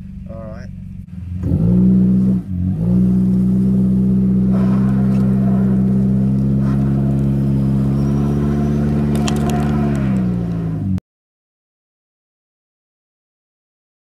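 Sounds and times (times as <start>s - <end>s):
car engine at high revs: 0.0s - 11.0s
dirt ticking: 2.8s - 10.9s
wheel spinning on grass: 4.5s - 10.6s.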